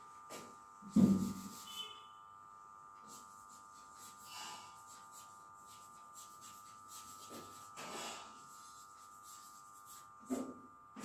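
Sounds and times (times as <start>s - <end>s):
chalk scratching on blackboard: 1.0s - 2.0s, 3.0s - 10.6s.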